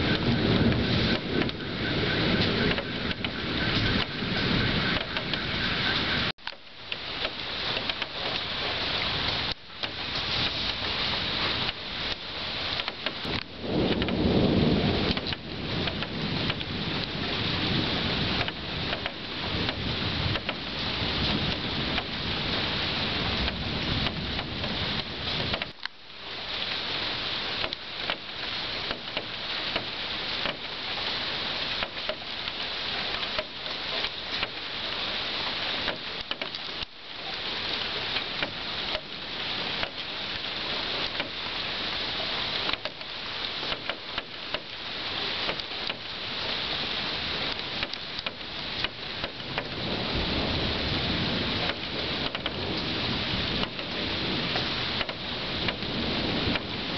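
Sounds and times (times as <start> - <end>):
low rumble of thunder: 0.0 - 6.3, 9.1 - 25.8, 45.5 - 56.9
steady rain falling: 0.0 - 56.9.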